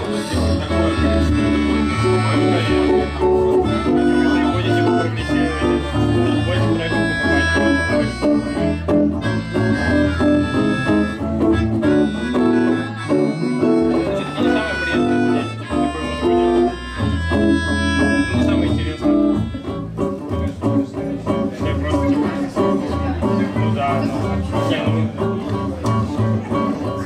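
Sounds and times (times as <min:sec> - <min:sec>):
melodica lead: 0:00.0 - 0:20.1
guitar: 0:00.0 - 0:27.0.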